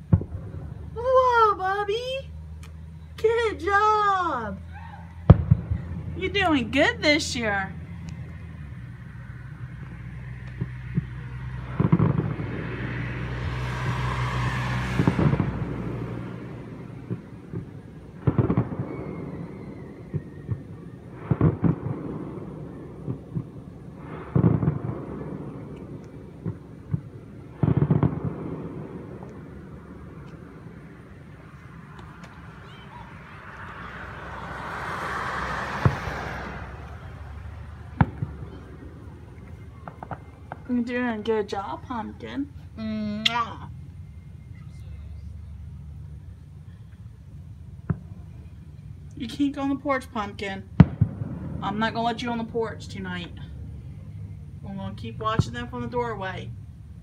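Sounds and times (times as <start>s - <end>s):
distant firework booms: 0.0s - 1.0s, 5.2s - 8.0s, 9.7s - 33.5s, 35.4s - 41.4s, 47.8s - 48.3s, 50.8s - 52.4s
car passing: 0.0s - 42.8s, 43.4s - 57.0s.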